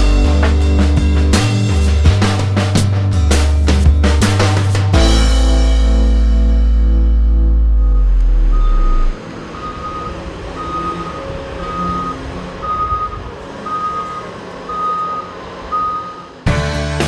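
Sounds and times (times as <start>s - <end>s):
truck engine rumble: 0.0s - 17.0s
truck reverse alarm beeping: 7.6s - 16.4s.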